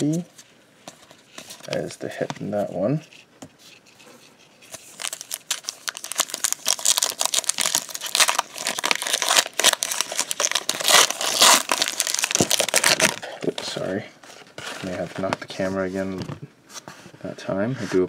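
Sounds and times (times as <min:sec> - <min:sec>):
foil wrapper crinkling and tearing: 0:04.8 - 0:13.8.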